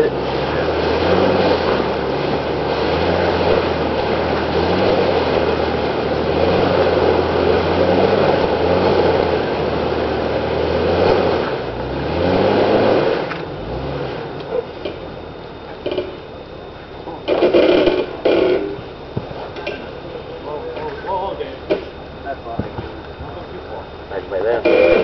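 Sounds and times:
vehicle engine revving: 0.0s - 25.0s.

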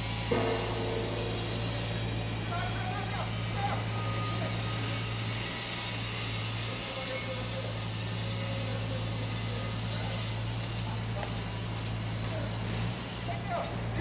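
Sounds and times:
hiss: 4.8s - 13.7s.

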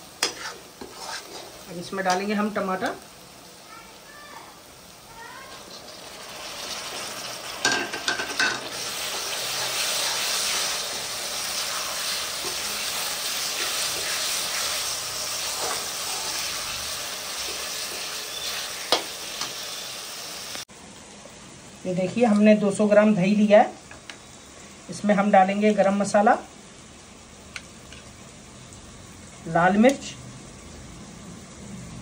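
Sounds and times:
spoon stirring a pan: 0.0s - 2.4s, 5.4s - 16.6s, 17.3s - 19.6s
food sizzling in hot oil: 0.0s - 32.0s.

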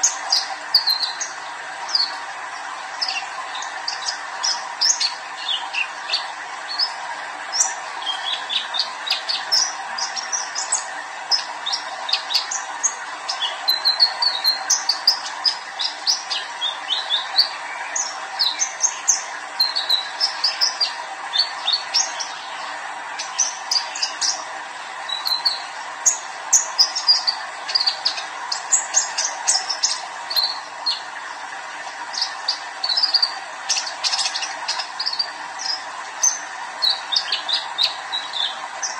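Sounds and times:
bird singing high chirps: 0.0s - 2.2s, 7.6s - 24.4s, 25.0s - 31.1s, 32.1s - 38.9s.

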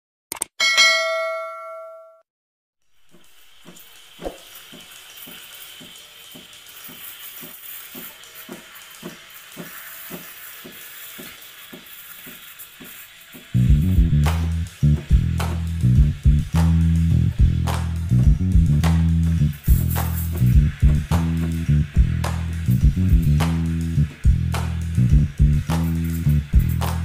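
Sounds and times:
notification bell ding: 0.6s - 2.2s
steam wand hissing: 2.9s - 27.0s
low regular pulse: 13.6s - 25.7s
guitar and bass music: 13.6s - 27.0s.

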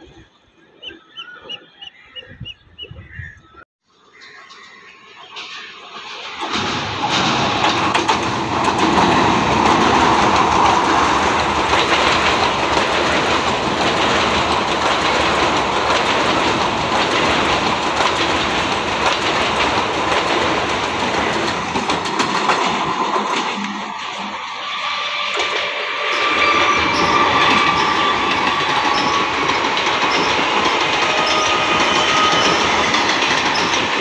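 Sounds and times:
wheels clicking over rail joints: 4.2s - 34.0s
train wheels rushing on rails: 4.5s - 34.0s.

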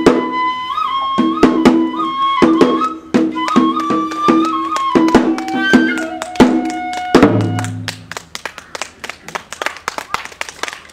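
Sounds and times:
bamboo flute melody: 0.0s - 7.9s.

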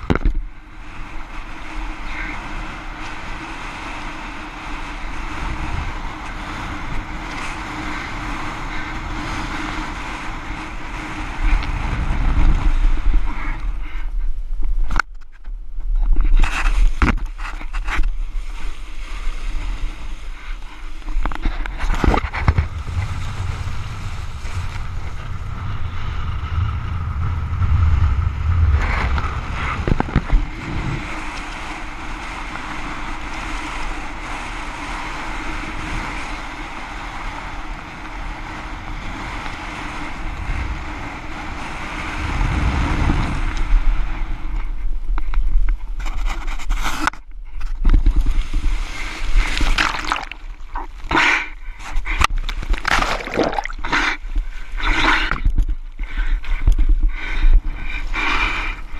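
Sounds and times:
wind buffeting microphone: 0.0s - 58.9s
low rumbles: 19.8s - 33.7s.

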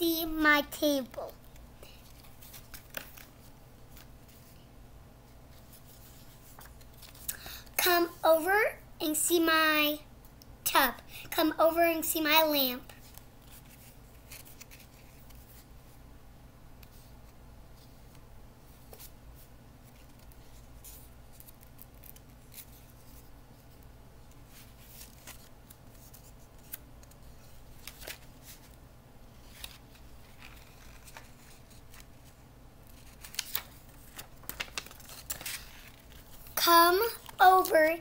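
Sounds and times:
paper pages rustling: 1.0s - 4.5s, 5.5s - 7.3s, 12.9s - 15.7s, 19.8s - 38.0s.

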